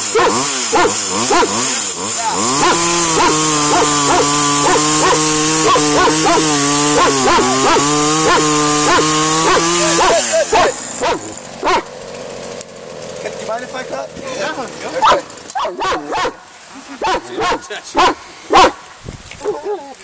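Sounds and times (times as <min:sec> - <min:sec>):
chainsaw cutting a log: 0:00.0 - 0:19.0
dog barking and yipping: 0:00.1 - 0:01.6, 0:02.6 - 0:11.9, 0:15.0 - 0:16.4, 0:17.0 - 0:18.8, 0:19.4 - 0:19.9.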